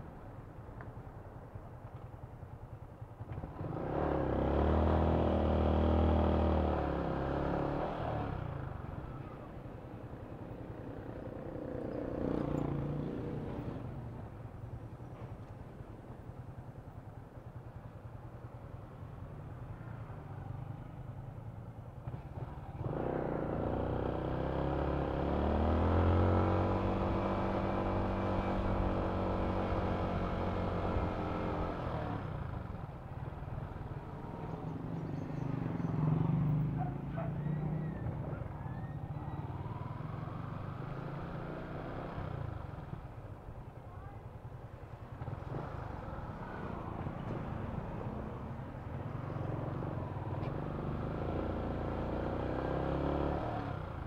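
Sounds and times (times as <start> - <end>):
motorcycle engine revving: 3.3 - 8.8, 22.0 - 43.1, 45.2 - 54.0.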